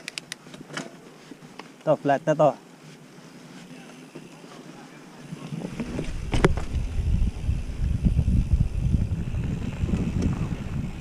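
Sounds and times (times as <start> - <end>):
bike jolting over trail: 5.2 - 11.0
wind on microphone: 5.3 - 11.0.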